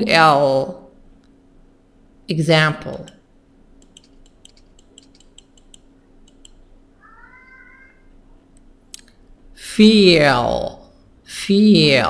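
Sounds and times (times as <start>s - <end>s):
faint irregular clicking: 3.8s - 6.6s.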